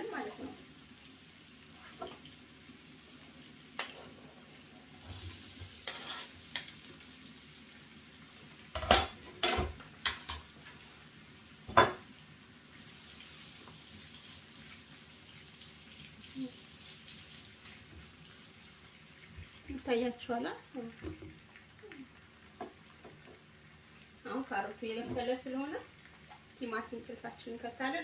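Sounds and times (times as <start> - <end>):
onions sizzling in a pan: 0.0 - 28.0
spatula stirring in pan: 3.0 - 7.4.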